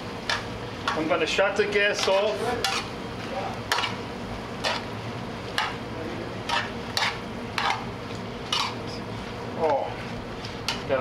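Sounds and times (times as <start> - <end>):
metal spoon scraping a pan: 1.9 - 3.0, 3.7 - 4.0, 4.6 - 4.9, 5.5 - 5.8, 6.4 - 9.0.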